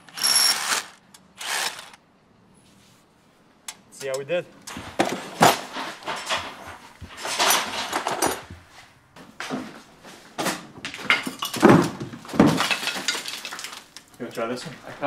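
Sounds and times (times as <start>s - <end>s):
metal tools clattering: 4.7s - 8.5s, 10.5s - 13.8s.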